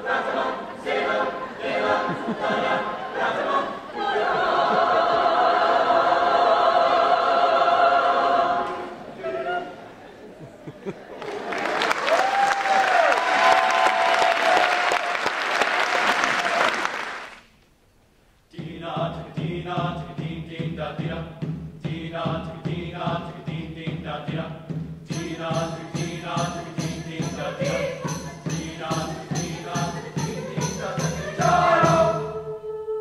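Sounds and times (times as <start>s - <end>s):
choir singing: 0.0s - 10.2s, 18.6s - 33.0s
audience applause: 11.0s - 17.5s
instrumental song with steady beat: 18.6s - 32.4s
bright ticking percussion: 25.1s - 32.2s.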